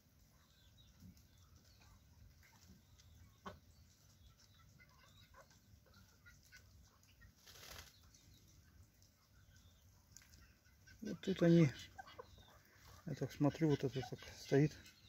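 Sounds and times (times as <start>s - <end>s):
chickens and roosters clucking: 0.0s - 15.0s
rustling: 6.0s - 8.3s.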